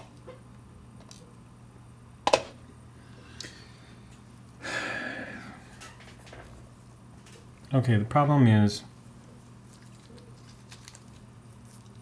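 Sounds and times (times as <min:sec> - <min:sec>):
steady low hum: 0:00.0 - 0:12.0
breathy exhale: 0:04.6 - 0:05.7.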